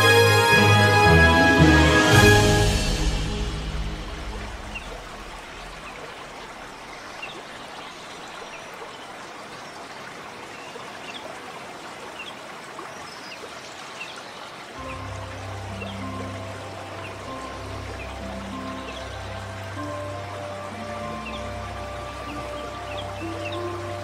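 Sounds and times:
background music: 0.0s - 5.8s, 14.8s - 24.0s
running water: 0.0s - 24.0s.

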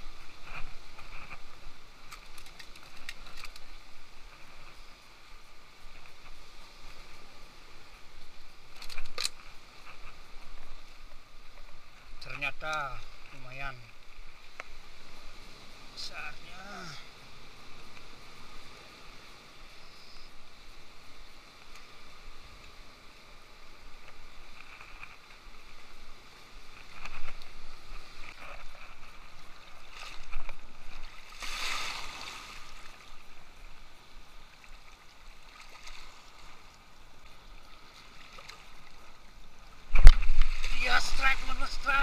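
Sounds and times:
sea water washing and sloshing: 26.4s - 33.6s, 34.4s - 42.0s.

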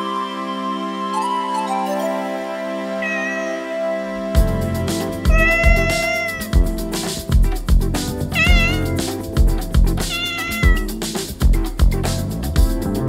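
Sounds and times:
cat meowing: 3.0s - 3.7s, 5.3s - 6.5s, 8.4s - 9.0s, 10.1s - 10.9s
background music with guitar: 3.0s - 13.0s.

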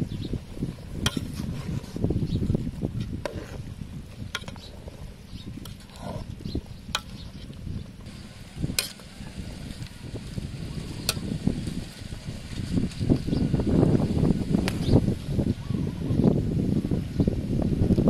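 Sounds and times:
ladle stirring soup in pot: 2.7s - 10.0s.

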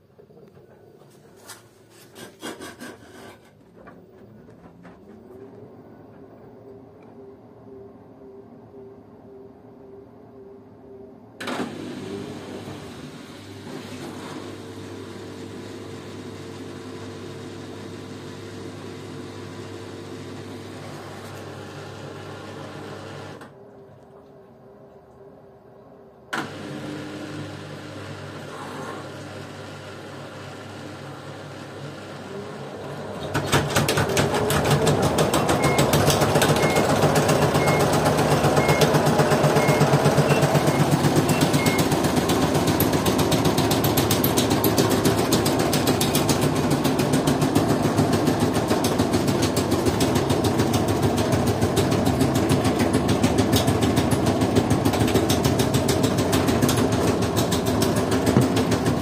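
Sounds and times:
washing machine running: 11.3s - 59.0s
washing machine spin rattling: 32.9s - 59.0s
short electronic beeps: 39.6s - 41.9s.

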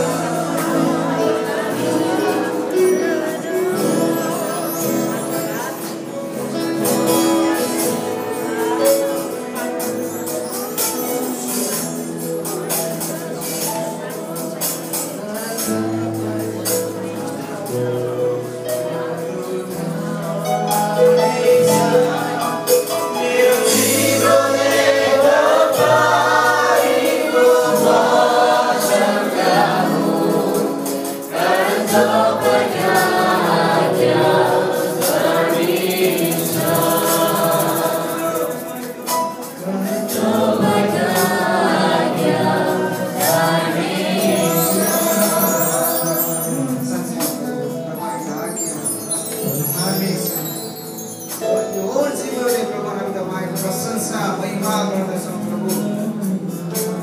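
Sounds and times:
group singing a hymn: 0.0s - 8.9s, 18.9s - 47.7s
band with guitar and keyboard: 0.0s - 57.0s.

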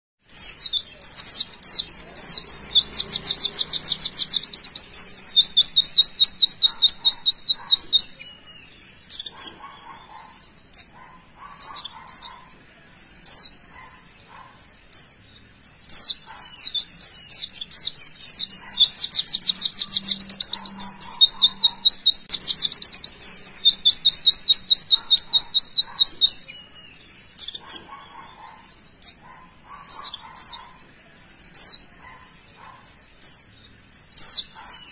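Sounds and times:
bird high-pitched trill: 0.2s - 12.4s, 15.8s - 30.7s.

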